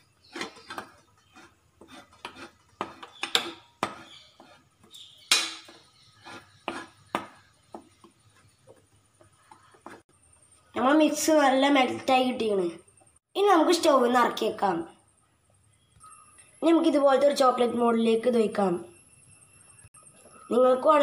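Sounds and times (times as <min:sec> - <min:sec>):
metal spoon scraping a bowl: 0:00.0 - 0:07.6.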